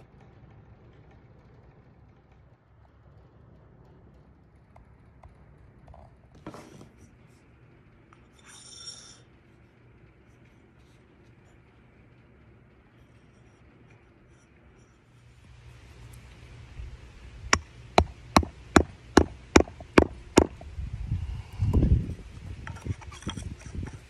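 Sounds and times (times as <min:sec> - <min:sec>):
low room hum: 0:00.0 - 0:24.0.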